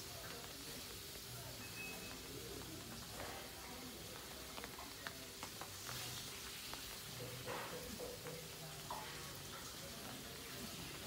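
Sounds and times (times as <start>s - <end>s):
small clicks and crackles: 2.0s - 7.1s.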